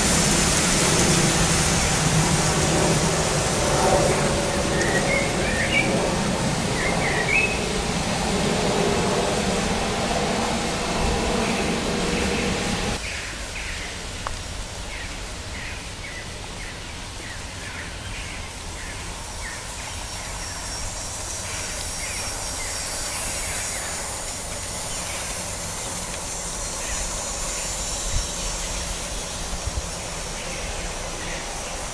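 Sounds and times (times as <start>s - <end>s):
birds chirping: 0.2s - 13.1s
model train rolling rumble: 19.1s - 31.9s.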